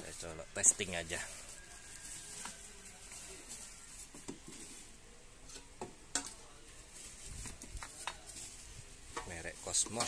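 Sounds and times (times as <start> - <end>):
plastic packaging rustling: 0.0 - 5.0, 6.7 - 10.0.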